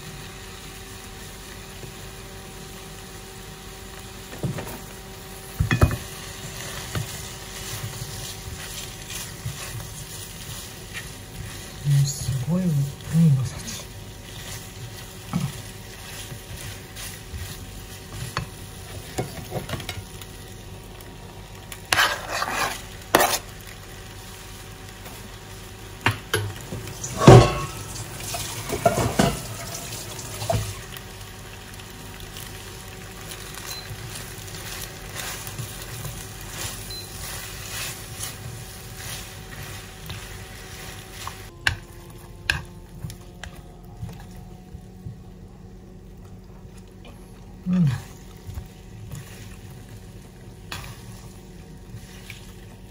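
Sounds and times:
food sizzling in pan: 0.0 - 43.4, 47.6 - 52.9
faint hum: 0.0 - 52.9
utensil clanking against pan: 26.1 - 30.6.

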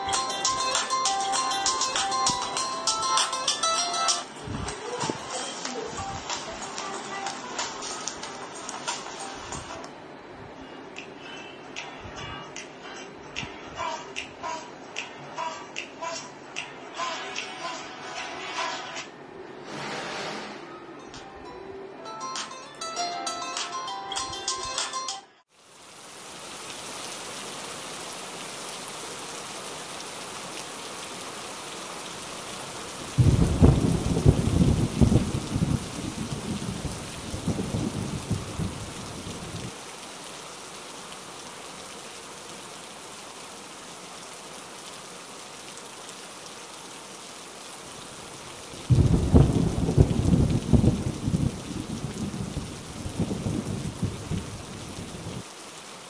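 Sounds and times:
steady rain: 0.0 - 12.5, 25.5 - 56.0
thunder rolling: 33.0 - 39.7, 48.8 - 55.4.

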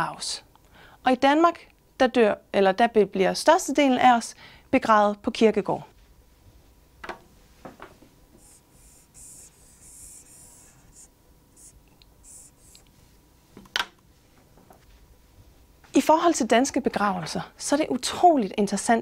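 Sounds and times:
marker squeaking on whiteboard: 8.4 - 12.8.

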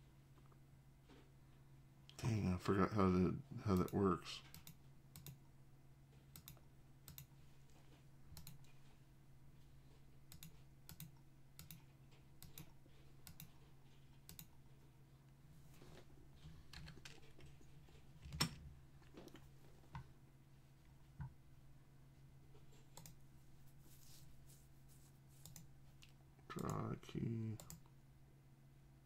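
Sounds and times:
low steady hum: 0.0 - 29.0
keyboard and mouse clicks: 3.7 - 5.4, 6.3 - 7.3, 8.3 - 8.8, 10.3 - 14.6, 22.8 - 23.2, 25.4 - 26.8.

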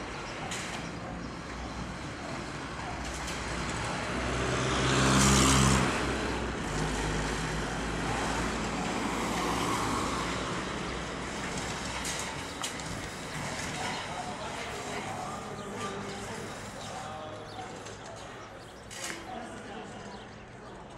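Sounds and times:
vehicle passing by: 1.6 - 17.2.

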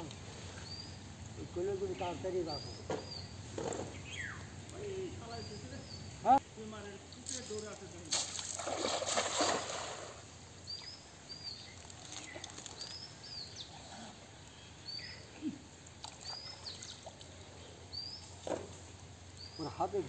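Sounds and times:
bird chirping: 0.5 - 6.3, 10.6 - 15.4, 16.1 - 18.6, 19.3 - 20.0
cast net splashing into water: 7.3 - 10.2.

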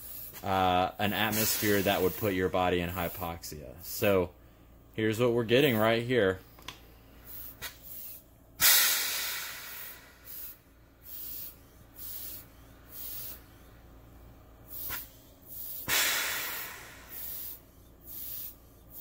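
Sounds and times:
hand pump puffing air: 0.0 - 0.5, 1.1 - 2.4, 7.2 - 13.9, 14.6 - 19.0
breath-like rush of air: 1.2 - 2.3, 7.0 - 19.0.

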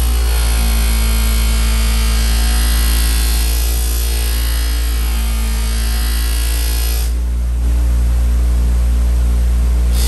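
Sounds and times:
buffer motor humming: 0.0 - 10.0.

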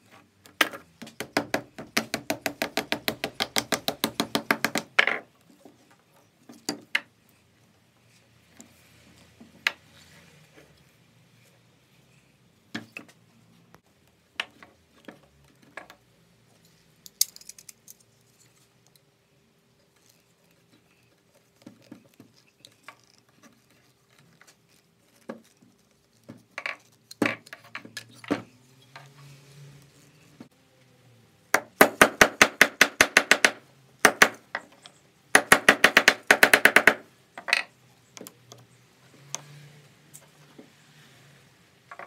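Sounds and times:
hands working cable clicks and knocks: 0.4 - 7.1, 20.0 - 29.1.

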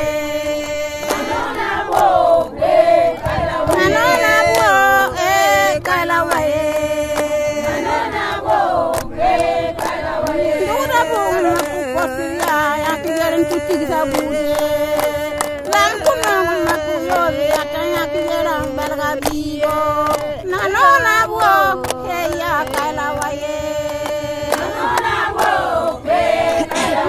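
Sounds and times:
voices singing chant-like song: 0.0 - 27.0
sharp percussive strikes: 3.2 - 7.3.

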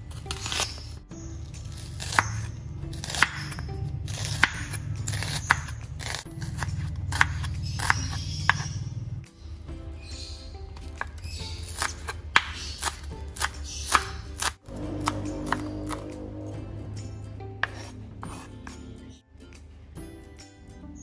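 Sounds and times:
knife slicing onion on cutting board: 0.1 - 0.9, 1.7 - 8.8, 10.8 - 16.3, 17.6 - 19.0.

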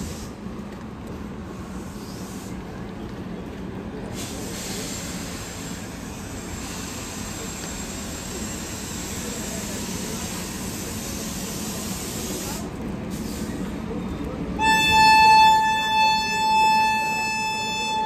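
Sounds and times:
train and station rumble: 0.0 - 18.0
train horn blast: 14.6 - 18.0.

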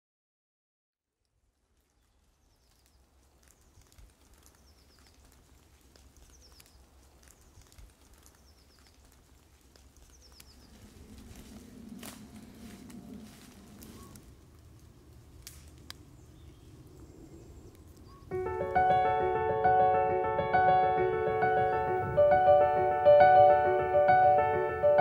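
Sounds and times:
small ticks: 1.2 - 16.8
low rustling: 1.4 - 16.9.

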